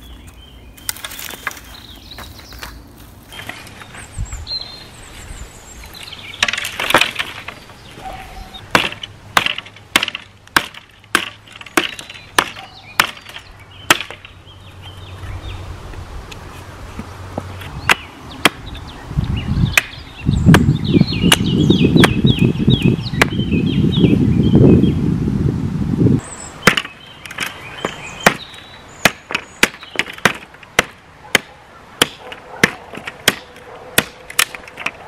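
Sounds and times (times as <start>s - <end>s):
hatchet chopping wood: 6.4s - 7.6s, 8.7s - 14.3s, 17.4s - 18.7s, 19.7s - 22.3s, 26.6s - 35.0s.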